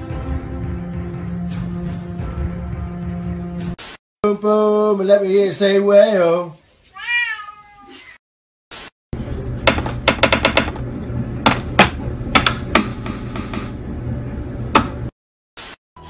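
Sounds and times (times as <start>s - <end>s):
steady low hum: 9.2s - 15.1s.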